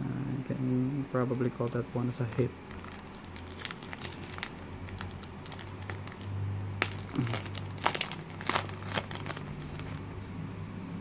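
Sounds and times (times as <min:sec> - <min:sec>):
foil wrapper crinkling: 0:01.5 - 0:10.0.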